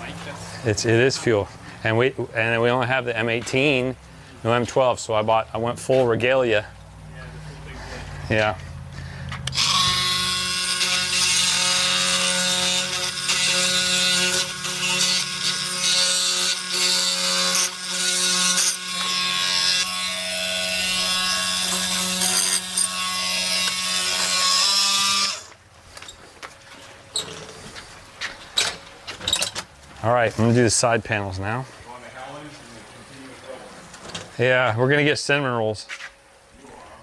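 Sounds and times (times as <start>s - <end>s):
oscillating multi-tool buzzing: 9.4s - 25.6s.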